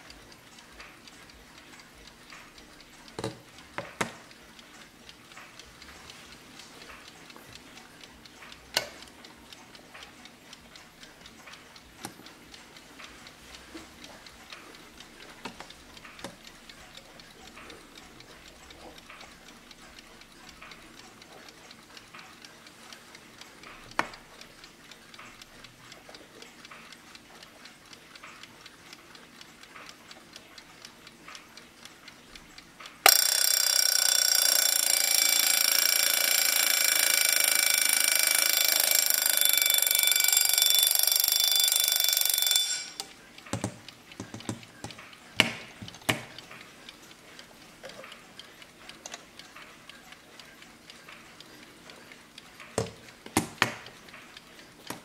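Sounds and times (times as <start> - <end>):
clock ticking: 0.0 - 55.0
alarm bell ringing: 33.1 - 43.0.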